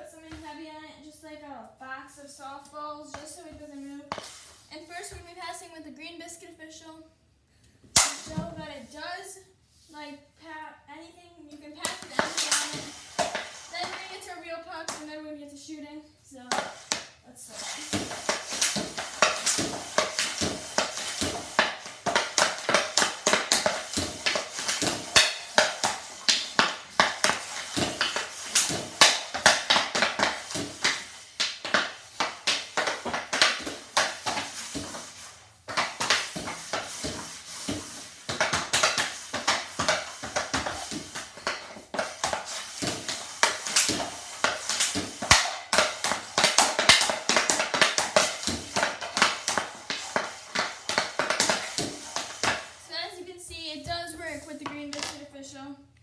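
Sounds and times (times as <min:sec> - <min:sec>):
hockey stick hitting puck: 0:00.2 - 0:00.6, 0:03.1 - 0:05.2, 0:07.9 - 0:08.8, 0:11.5 - 0:15.2, 0:16.4 - 0:55.3
stick blade scraping floor: 0:03.1 - 0:05.3, 0:11.6 - 0:15.2, 0:16.4 - 0:55.3.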